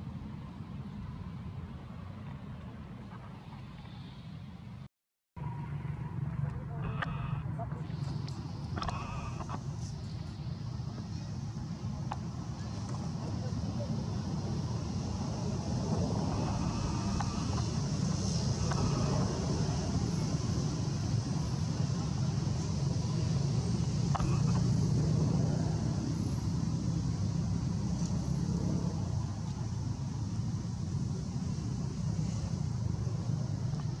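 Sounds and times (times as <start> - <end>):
distant traffic rumble: 0.0 - 34.0.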